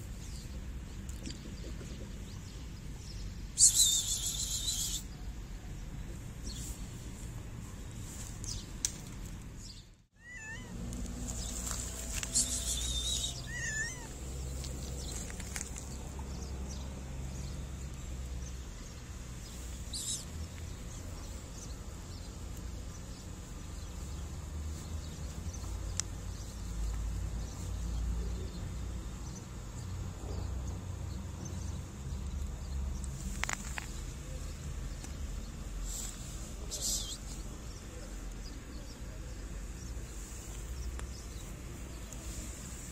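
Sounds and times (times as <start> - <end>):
low outdoor hum: 0.0 - 42.9
cat meowing: 10.2 - 10.8, 13.1 - 14.2.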